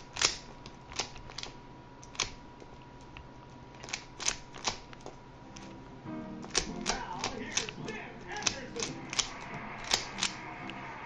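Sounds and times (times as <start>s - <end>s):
plastic puzzle cube clicks: 0.0s - 2.4s, 6.5s - 7.8s, 8.4s - 10.4s.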